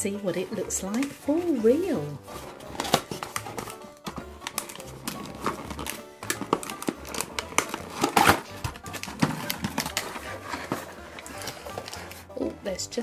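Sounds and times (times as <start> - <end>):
cardboard box being opened: 2.2 - 12.4.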